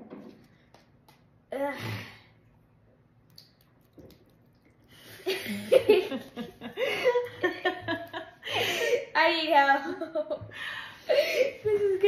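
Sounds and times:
boy laughing and making vocal noises: 11.1s - 12.0s.

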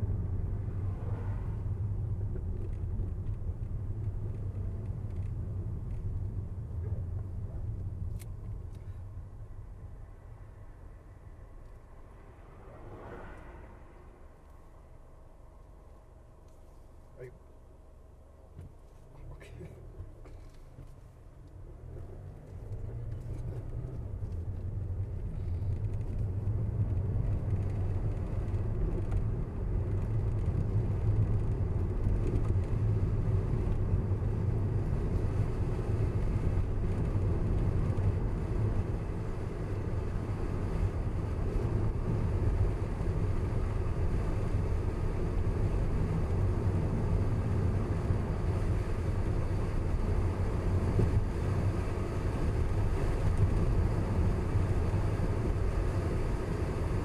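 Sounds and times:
car tyres and engine rumble: 0.0s - 57.0s.

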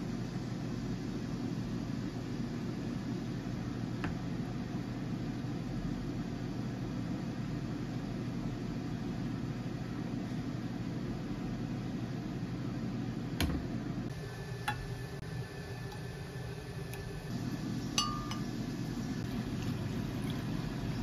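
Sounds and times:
low mechanical hum: 0.0s - 21.0s
faint high whine: 14.0s - 21.0s.

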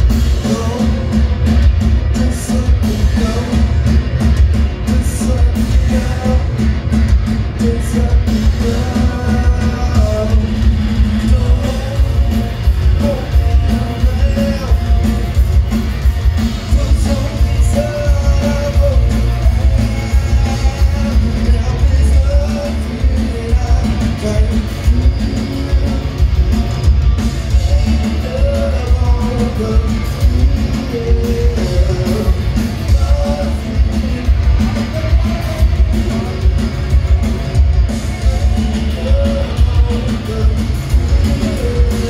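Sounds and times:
drums: 0.0s - 42.0s
electric guitars: 0.0s - 42.0s
person singing: 7.5s - 15.4s, 16.5s - 26.7s, 27.5s - 42.0s.

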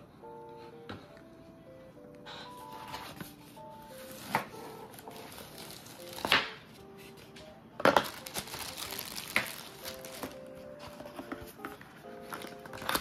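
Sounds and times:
soft background music: 0.0s - 13.0s
plastic bag crinkling: 5.0s - 6.3s, 8.0s - 10.5s.

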